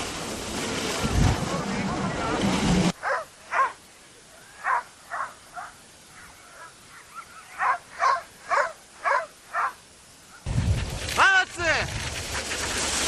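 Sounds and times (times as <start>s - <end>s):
sled dogs barking: 3.0s - 10.4s.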